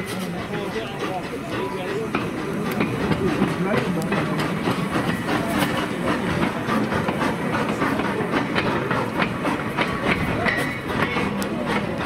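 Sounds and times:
steam locomotive running past: 0:00.0 - 0:12.0
wheels clicking over rail joints: 0:00.0 - 0:12.0.

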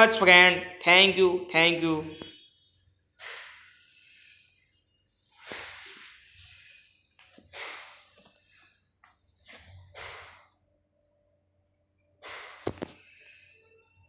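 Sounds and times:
person breathing softly: 0:03.7 - 0:09.5.

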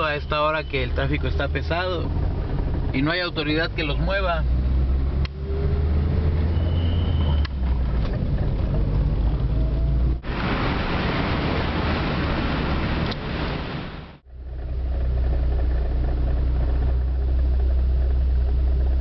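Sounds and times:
street and traffic noise: 0:00.0 - 0:19.0
car engine hum inside cabin: 0:00.3 - 0:19.0.

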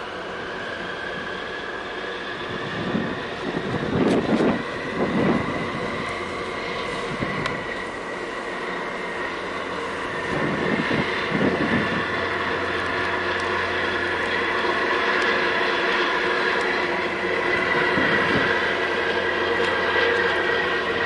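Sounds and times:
low hum: 0:00.0 - 0:21.0
tug engine drone: 0:00.0 - 0:21.0
wind gusts on microphone: 0:02.2 - 0:08.2, 0:08.8 - 0:15.0, 0:16.2 - 0:20.0.

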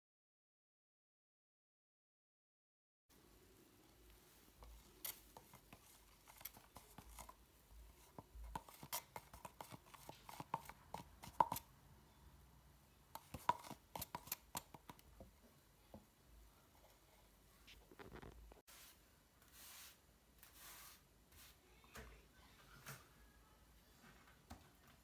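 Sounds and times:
stick scraping in metal paint tin: 0:13.2 - 0:14.8.

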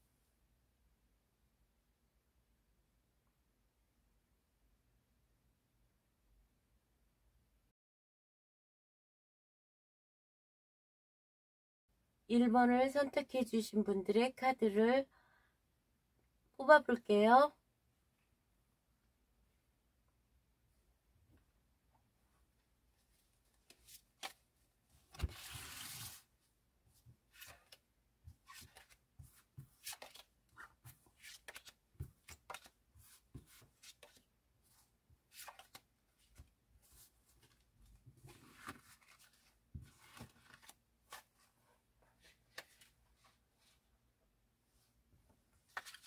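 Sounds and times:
cards sliding and rustling: 0:23.6 - 0:24.4, 0:25.0 - 0:26.3, 0:27.2 - 0:37.6, 0:38.3 - 0:41.6, 0:42.2 - 0:43.8, 0:45.7 - 0:46.0.

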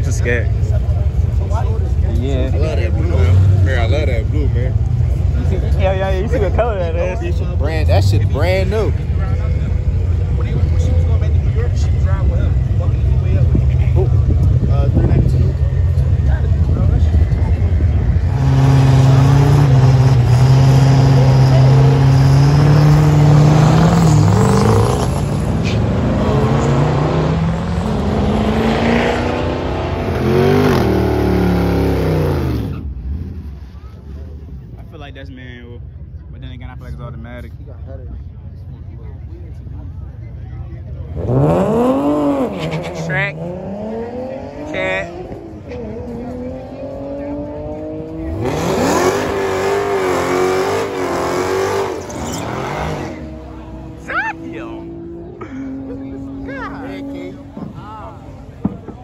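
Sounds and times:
car engine accelerating through gears: 0:18.2 - 0:32.8, 0:41.1 - 0:57.6
car engine revving during burnout: 0:18.2 - 0:32.8, 0:41.1 - 0:54.2.

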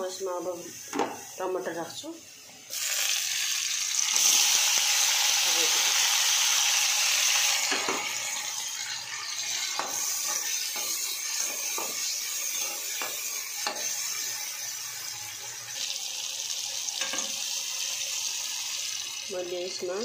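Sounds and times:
vegetables sizzling in hot oil: 0:00.0 - 0:20.0
metal spatula scraping pan: 0:09.5 - 0:14.2.

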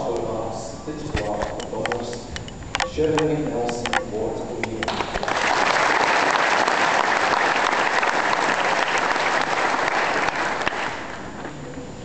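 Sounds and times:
audience applauding: 0:04.9 - 0:11.4.

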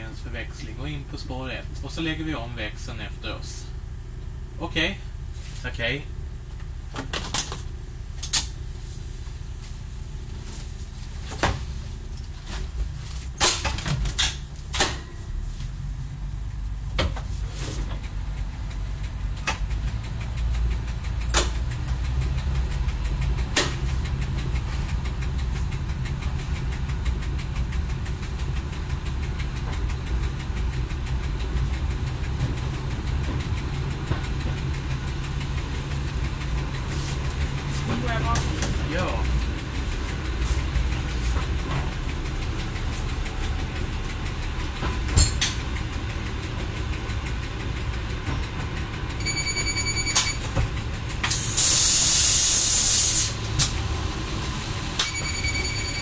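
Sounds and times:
diesel railcar engine droning: 0:00.0 - 0:56.0.

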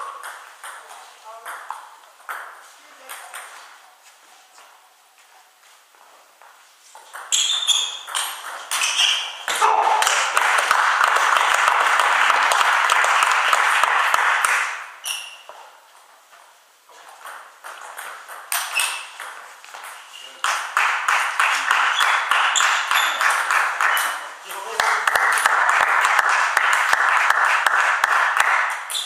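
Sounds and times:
applause: 0:09.9 - 0:14.8, 0:20.4 - 0:28.9.

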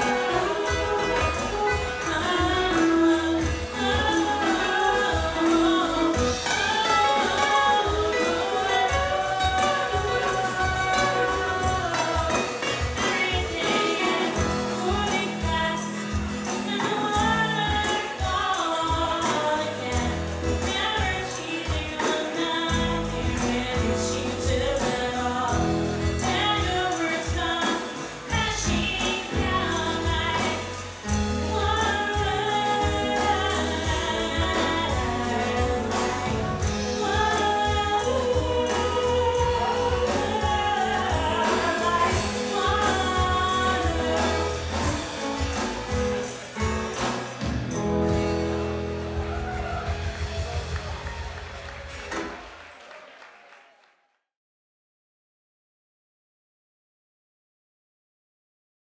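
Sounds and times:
woman singing: 0:00.0 - 0:46.2
acoustic guitar strumming: 0:00.0 - 0:51.0
tambourine: 0:00.0 - 0:52.2
electric guitar: 0:00.0 - 0:52.6
drums: 0:00.0 - 0:53.0.

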